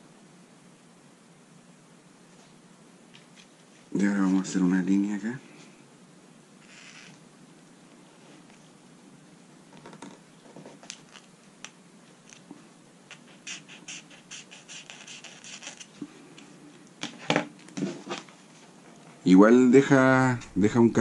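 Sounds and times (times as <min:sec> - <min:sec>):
fishing line tip scratching paper: 0:06.6 - 0:07.2, 0:13.1 - 0:16.0.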